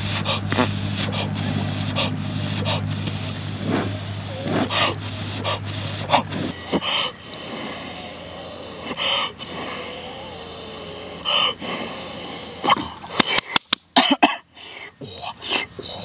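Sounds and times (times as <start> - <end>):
man puffing breathy exhalations: 0.0 - 7.8
steady high-pitched whine: 0.0 - 16.0
sharp clicks: 13.0 - 13.9.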